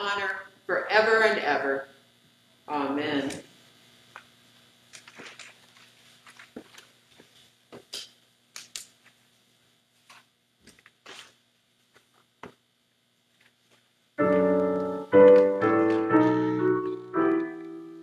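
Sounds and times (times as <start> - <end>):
binder pages turning: 4.9 - 7.4, 10.0 - 12.6.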